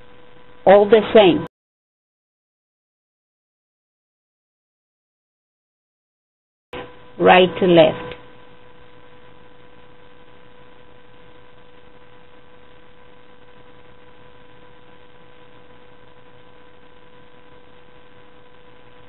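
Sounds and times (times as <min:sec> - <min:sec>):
high-pitched electrical whine: 0:00.0 - 0:01.5, 0:06.8 - 0:19.0.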